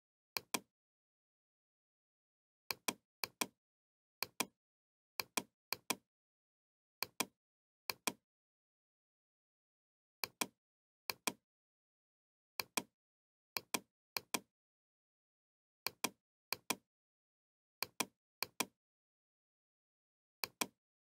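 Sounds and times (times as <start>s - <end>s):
computer mouse clicking: 0.4s - 0.7s, 2.7s - 3.6s, 4.2s - 4.6s, 5.2s - 6.0s, 7.0s - 7.3s, 7.9s - 8.2s, 10.2s - 11.4s, 13.6s - 14.5s, 15.9s - 16.8s, 17.8s - 18.8s, 20.4s - 20.8s.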